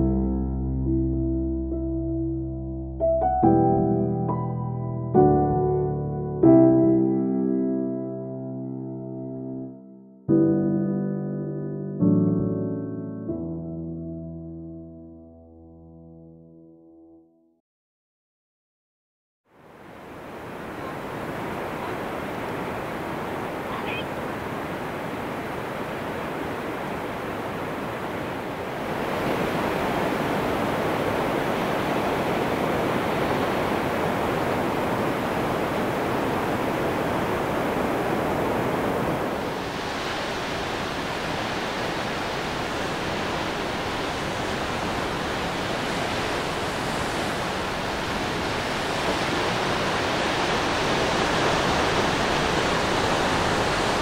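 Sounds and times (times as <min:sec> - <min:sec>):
rushing water: 0:19.5 - 0:54.0.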